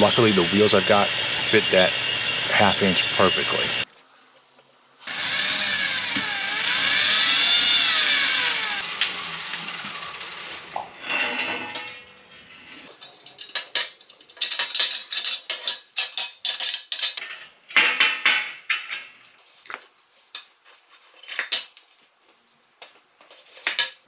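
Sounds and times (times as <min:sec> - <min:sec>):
steel clinking and rattling: 0:09.7 - 0:19.1.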